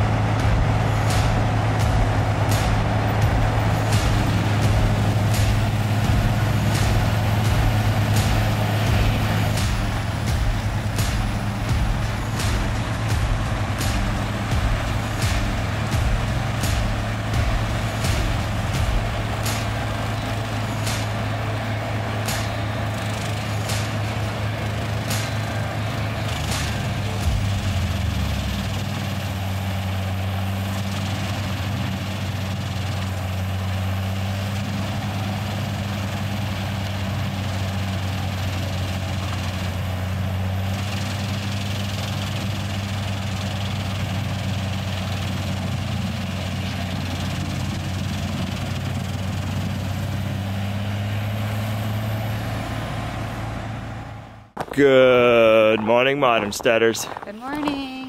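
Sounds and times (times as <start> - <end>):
heavy engine drone: 0.0 - 58.0
wood chipper cracking log: 54.6 - 57.9.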